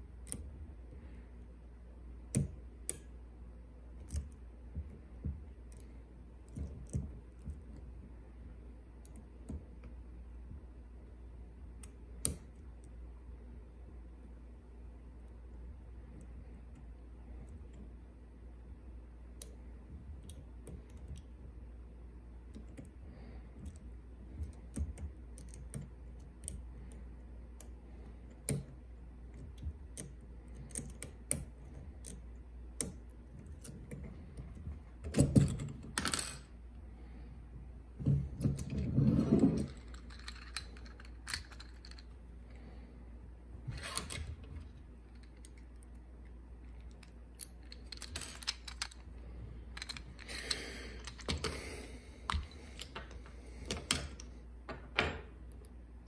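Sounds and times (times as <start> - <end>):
lock pick clicking on pins: 2.2 - 3.2, 11.8 - 12.6, 23.6 - 36.4
padlock knocking and rattling: 32.8 - 36.0.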